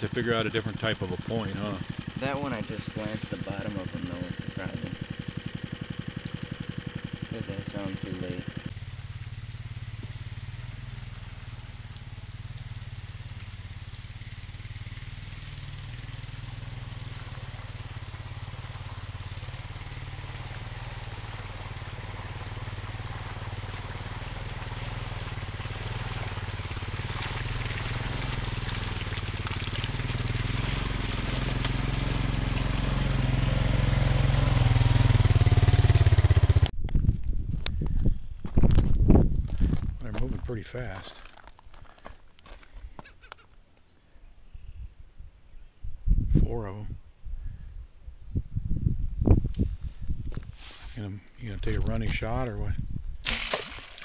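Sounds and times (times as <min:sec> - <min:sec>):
atv engine running: 0:00.0 - 0:36.8.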